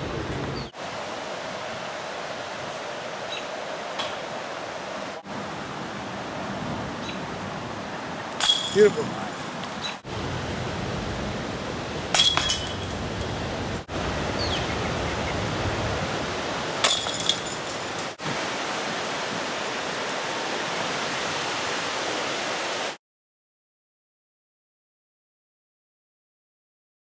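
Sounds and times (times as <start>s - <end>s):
steady outdoor hiss: 0.0s - 23.0s
metal chains jingling: 8.4s - 9.9s, 12.2s - 13.8s, 16.8s - 18.2s.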